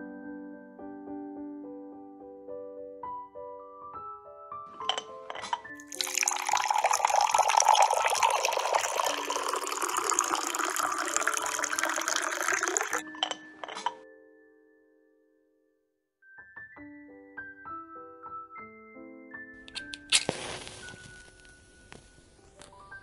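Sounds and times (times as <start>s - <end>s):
liquid pouring into a cup: 5.8s - 13.1s.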